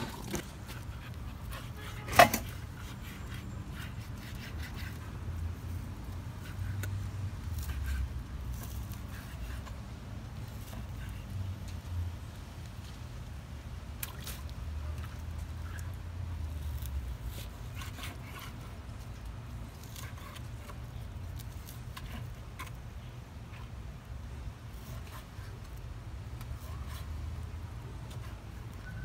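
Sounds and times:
knife cutting meat on wooden board: 0.0 - 5.2.

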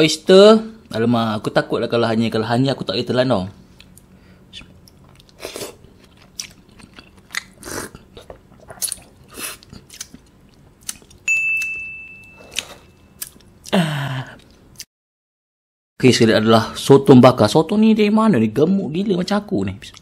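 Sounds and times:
wet chewing and mouth smacks: 4.8 - 11.7, 12.5 - 13.7
high electronic chime: 11.3 - 13.2.

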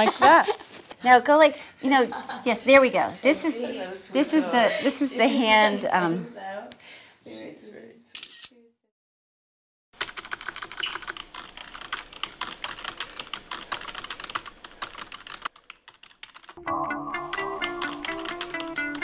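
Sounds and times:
plucked guitar music: 16.6 - 19.0.

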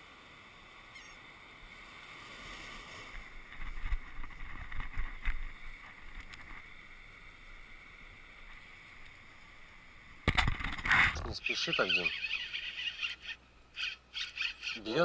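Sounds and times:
wind and surf hiss: 0.0 - 14.2
wind rumbling on microphone: 2.7 - 6.8.

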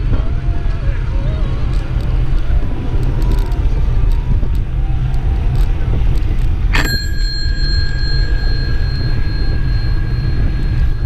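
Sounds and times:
wind rumble on microphone: 0.0 - 11.0
bicycle bell ringing: 6.7 - 11.0.

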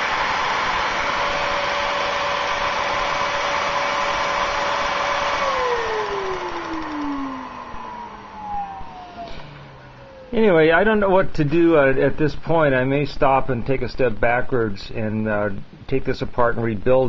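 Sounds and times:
hand-held vacuum cleaner running: 0.0 - 10.3
small air engine running: 0.0 - 10.5.

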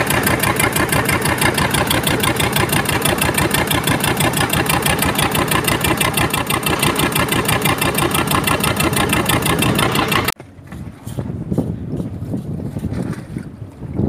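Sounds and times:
boat engine running: 0.0 - 10.6.

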